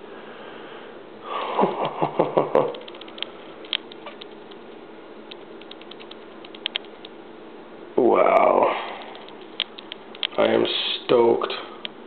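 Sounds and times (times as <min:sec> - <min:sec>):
small clicks: 0:02.6 - 0:07.2, 0:09.0 - 0:10.4.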